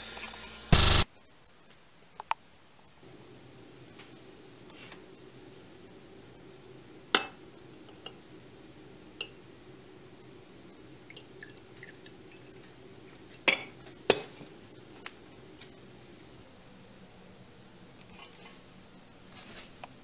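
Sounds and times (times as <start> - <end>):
glassware clinking: 13.5 - 14.4.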